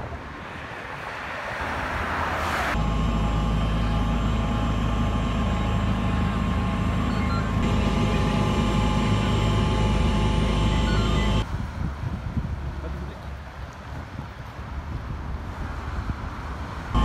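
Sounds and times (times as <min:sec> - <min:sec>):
low engine drone: 0:02.7 - 0:11.5, 0:16.6 - 0:17.0
faint steady tones: 0:02.8 - 0:11.4.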